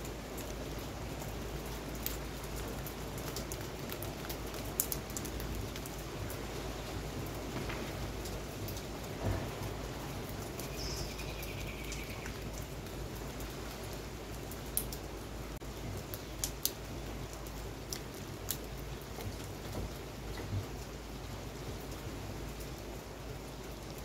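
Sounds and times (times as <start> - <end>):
raindrops tapping close by: 0.0 - 24.0
steady rain falling: 0.0 - 24.0.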